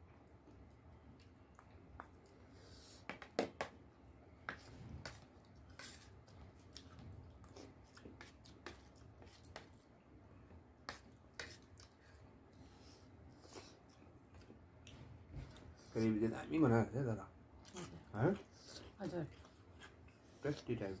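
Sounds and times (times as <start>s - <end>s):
chewing smacks: 0.5s - 2.4s.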